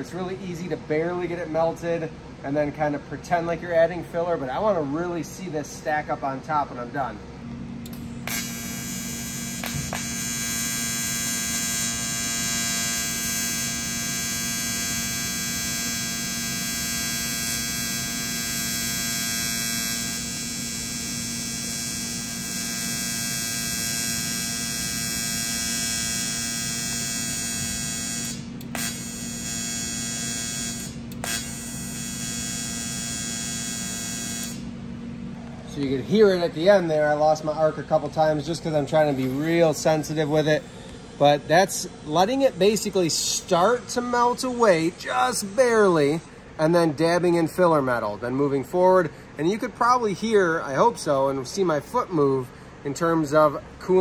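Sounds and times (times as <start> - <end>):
welding arc buzzing: 7.8 - 46.8.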